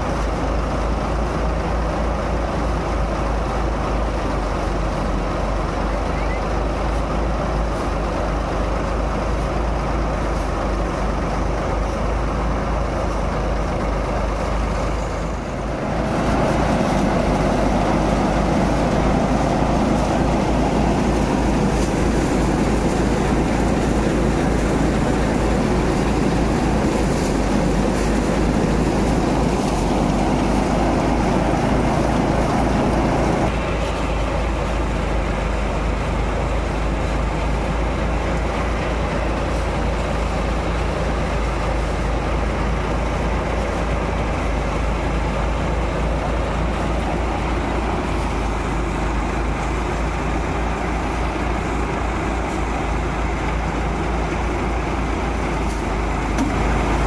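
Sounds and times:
tractor engine low beat: 0:00.0 - 0:57.0
threshing drum machine noise: 0:15.6 - 0:34.2.

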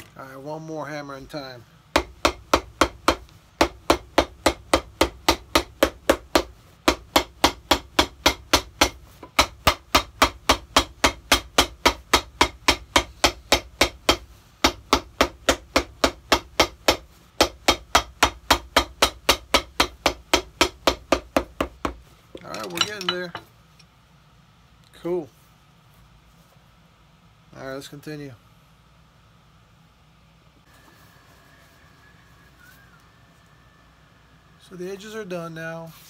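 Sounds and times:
hammer striking leather sole: 0:01.9 - 0:22.0.

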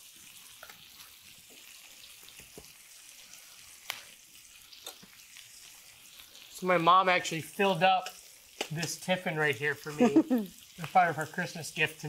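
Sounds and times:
onions sizzling in oil: 0:00.0 - 0:12.0
sharp crackles: 0:03.8 - 0:06.8.

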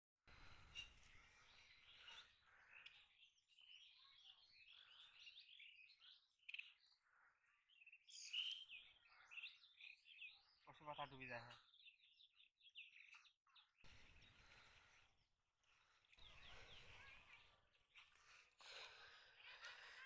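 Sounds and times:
small birds chirping: 0:00.3 - 0:20.0.

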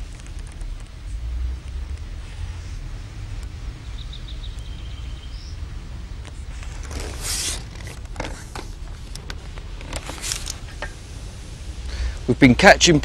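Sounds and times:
low outdoor rumble: 0:00.0 - 0:13.0
rustling swish: 0:06.3 - 0:11.8.

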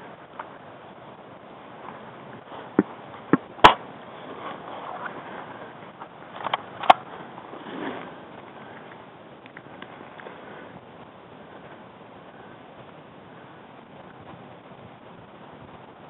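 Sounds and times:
rustling dry leaves: 0:00.0 - 0:16.0.

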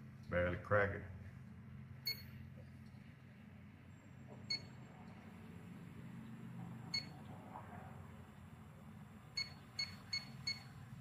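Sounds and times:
leak detector high beeps: 0:02.0 - 0:02.4, 0:04.5 - 0:04.8, 0:06.9 - 0:07.2, 0:09.4 - 0:10.8.

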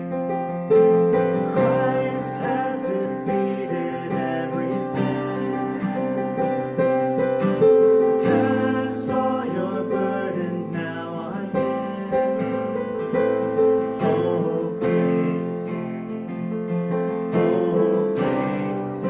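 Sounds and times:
strummed acoustic guitar: 0:00.0 - 0:19.0
men singing a hymn: 0:01.3 - 0:06.2, 0:08.2 - 0:11.6, 0:14.0 - 0:15.6, 0:17.4 - 0:19.0.

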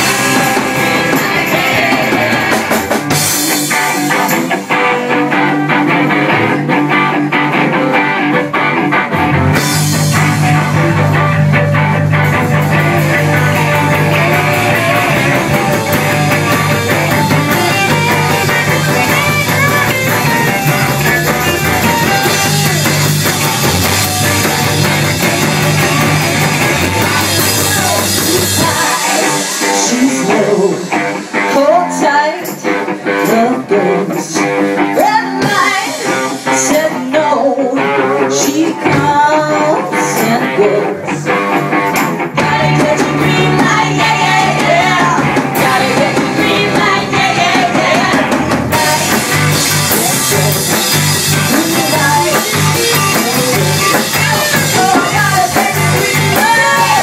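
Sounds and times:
women singing: 0:00.0 - 0:03.0, 0:12.8 - 0:20.0, 0:27.0 - 0:41.2, 0:42.4 - 0:50.7, 0:51.5 - 0:57.0
live rock band: 0:00.0 - 0:57.0.

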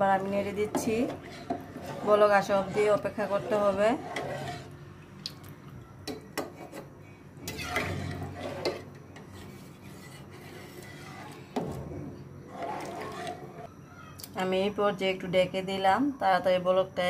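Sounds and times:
spoon knocking and scraping pot: 0:00.4 - 0:04.7, 0:06.1 - 0:11.9.

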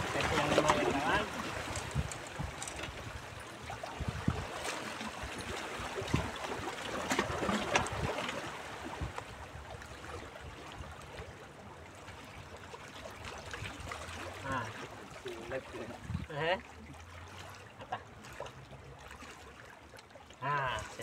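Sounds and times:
waves splashing against rocks: 0:00.0 - 0:10.3.

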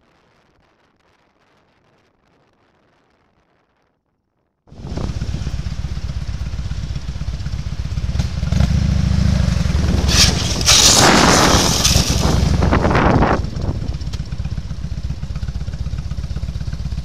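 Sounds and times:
motorcycle engine running: 0:04.7 - 0:17.0
road and wind noise: 0:04.7 - 0:17.0
loud rushing noise: 0:08.0 - 0:14.3.

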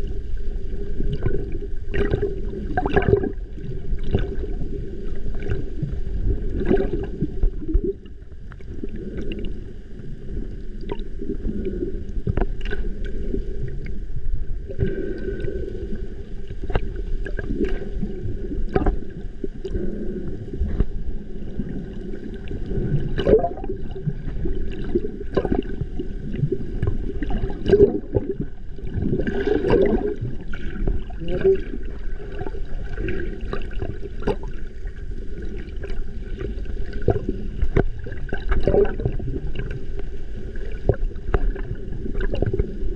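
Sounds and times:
underwater rush of water: 0:00.0 - 0:42.9
knocks underwater: 0:18.7 - 0:19.1, 0:25.3 - 0:25.7.

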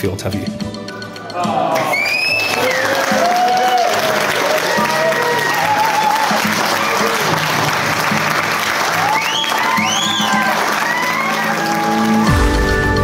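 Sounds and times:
background music: 0:00.0 - 0:13.0
guests applauding: 0:01.6 - 0:13.0.

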